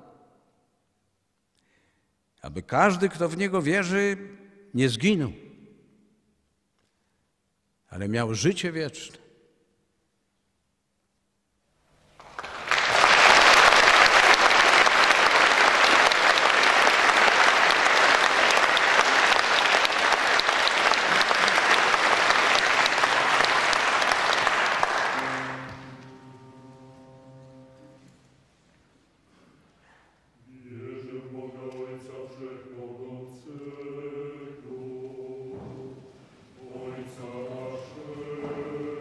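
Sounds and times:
audience applauding: 12.2s - 26.2s
held musical notes: 21.2s - 29.2s.

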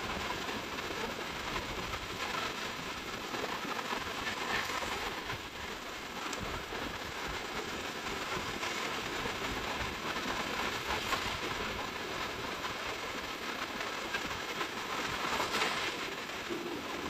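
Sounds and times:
surf washing: 0.0s - 17.0s.

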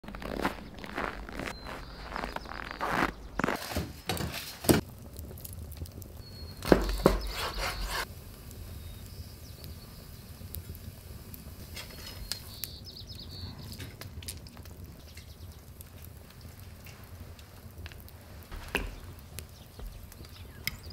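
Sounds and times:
footsteps: 0.0s - 4.8s, 17.9s - 20.4s.

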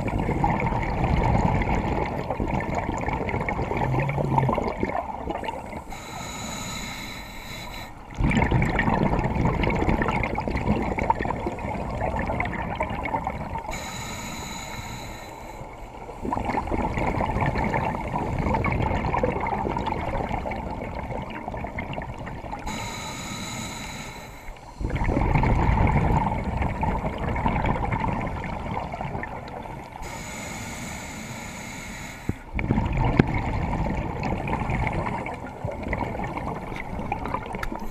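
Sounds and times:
exhaled bubbles rushing: 0.0s - 5.9s, 8.0s - 13.7s, 16.0s - 22.7s, 24.7s - 30.0s, 32.4s - 37.9s
regulator inhalation hissing whistle: 5.9s - 8.0s, 13.7s - 15.7s, 22.7s - 24.7s, 30.0s - 32.4s.

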